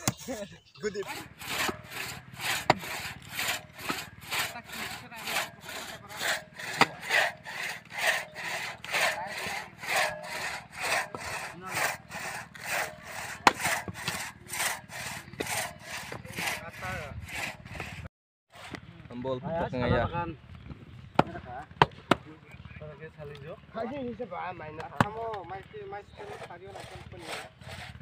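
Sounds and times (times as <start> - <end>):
hand saw cutting wood: 0.9 - 18.8, 26.0 - 28.0
sharp knocks: 6.6 - 7.1.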